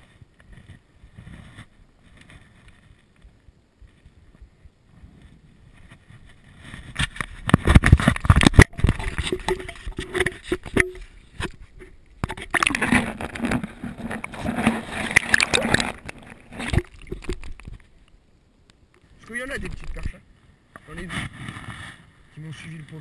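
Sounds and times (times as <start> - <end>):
knocks and rubbing against camera: 5.1 - 17.9
water sloshing and churning: 7.8 - 18.0.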